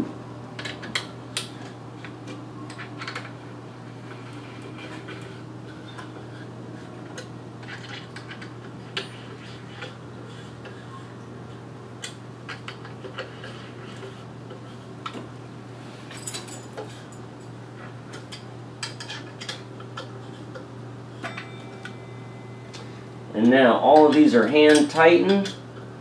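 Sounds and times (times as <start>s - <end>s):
low hum: 21.0s - 24.5s.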